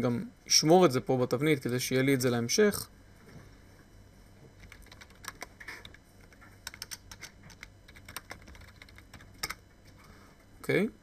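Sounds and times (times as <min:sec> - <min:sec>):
low steady hum: 0:00.0 - 0:11.0
keyboard key clicks: 0:06.6 - 0:08.8.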